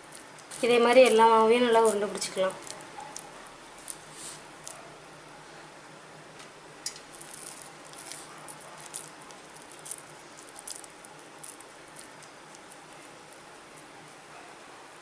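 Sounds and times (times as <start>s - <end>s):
hands squishing dough: 7.1s - 14.2s.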